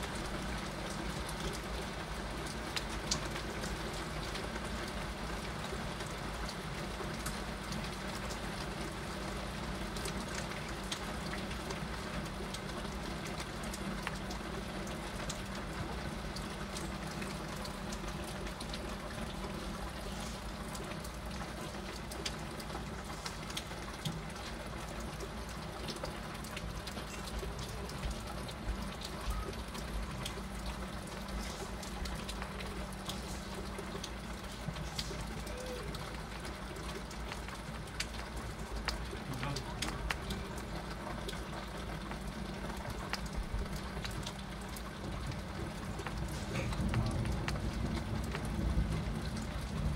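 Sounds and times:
raindrops tapping: 0.1 - 49.9
heavy rain hissing: 19.0 - 21.0, 31.0 - 36.4, 45.6 - 49.9.

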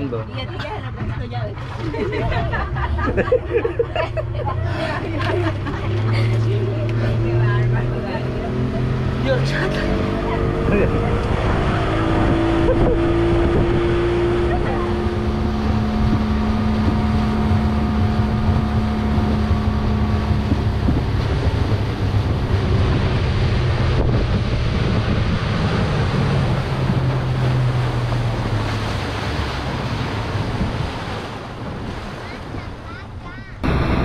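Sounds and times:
boat engine running: 0.0 - 34.0
rushing water: 0.0 - 34.0
wind on microphone: 9.9 - 34.0.

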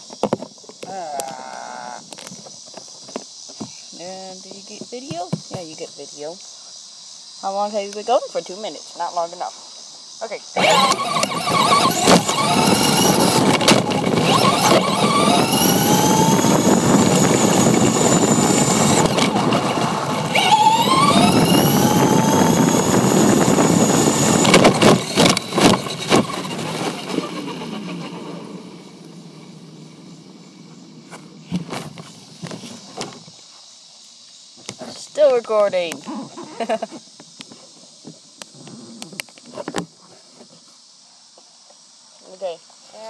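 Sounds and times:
rc car motor whining: 10.6 - 29.2
tyres rumbling on pavement: 10.6 - 29.7.

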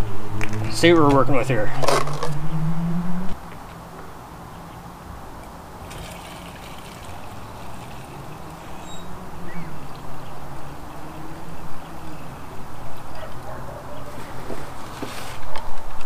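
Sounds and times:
gasoline pouring into tank: 5.8 - 8.6.

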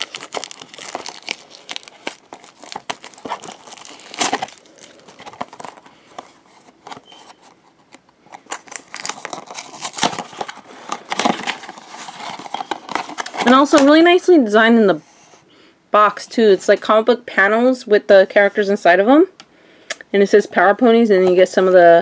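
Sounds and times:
cardboard packaging crinkling: 0.0 - 14.0.

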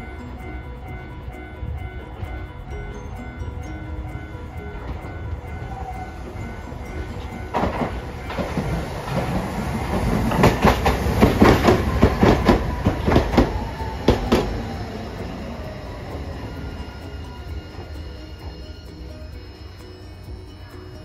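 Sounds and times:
tram wheels clacking over rail joints: 0.0 - 21.0
tram whine falling in pitch: 0.0 - 21.0.

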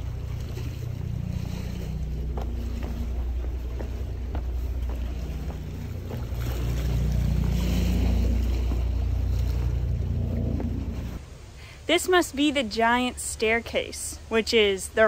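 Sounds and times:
low rumble: 0.0 - 11.4
footsteps on rock: 2.2 - 7.1.

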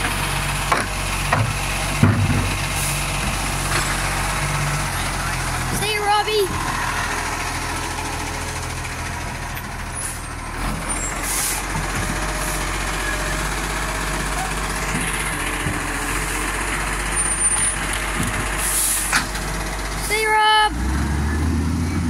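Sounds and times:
diesel engine running: 0.0 - 22.0
air hissing: 18.6 - 19.3.

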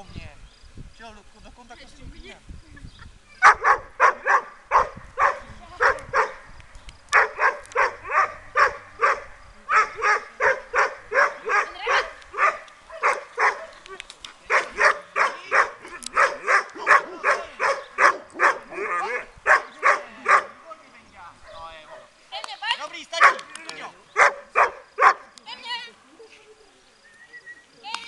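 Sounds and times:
dog barking: 3.4 - 6.4, 7.1 - 13.8, 14.5 - 20.6, 21.5 - 22.1, 23.2 - 23.5, 24.2 - 25.3.

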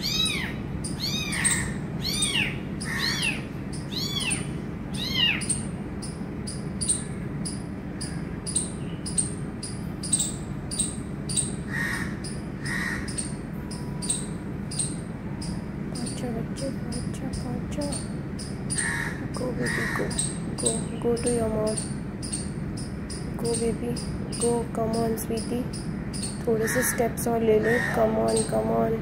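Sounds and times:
kitten mewing: 0.0 - 3.4.

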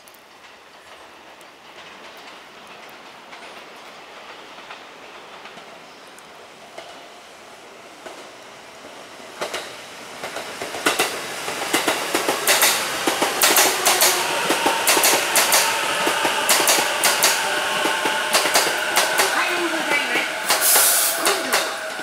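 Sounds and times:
train rolling on rails: 0.0 - 22.0
wheels clattering over rail joints: 9.4 - 19.4.

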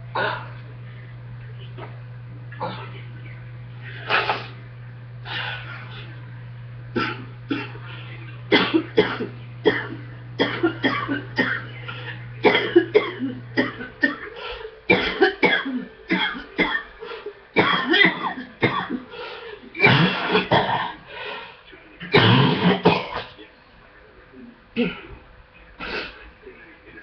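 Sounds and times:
person coughing: 7.0 - 7.9, 8.5 - 21.0, 22.1 - 23.3, 24.8 - 25.2.

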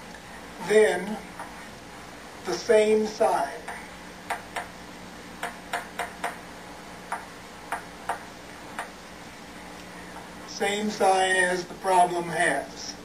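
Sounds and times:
low steady hum: 0.0 - 13.0
chalk tapping on chalkboard: 5.4 - 6.4, 7.1 - 8.2.

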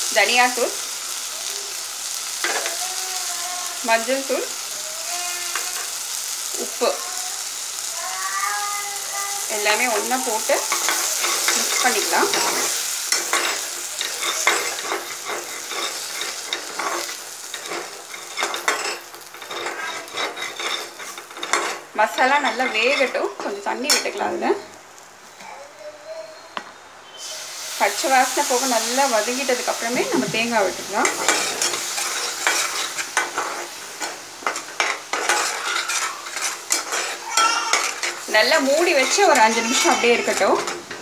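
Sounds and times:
light sizzle: 0.0 - 25.5, 26.6 - 41.0
spatula scraping a pan: 9.8 - 24.3, 27.3 - 41.0.

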